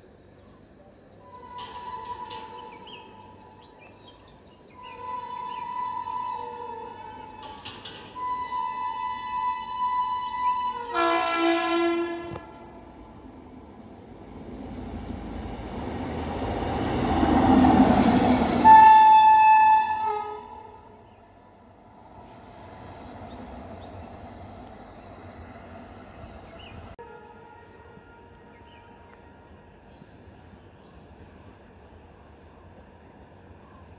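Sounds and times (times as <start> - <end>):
train rumble: 0.1 - 33.9
train horn: 1.2 - 3.2, 4.8 - 13.0, 17.5 - 21.0, 27.0 - 29.6.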